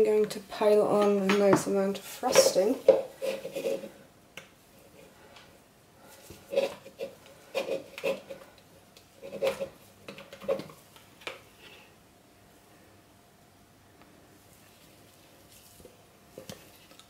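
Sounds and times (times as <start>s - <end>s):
utensil scraping plastic jug: 2.2s - 4.0s, 6.4s - 8.5s, 9.2s - 10.7s.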